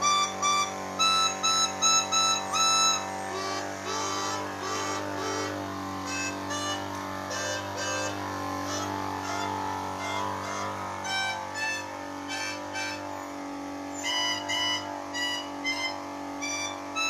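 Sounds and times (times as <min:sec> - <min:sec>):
air compressor motor hum: 0:00.0 - 0:17.0
melodica reed notes: 0:00.0 - 0:17.0.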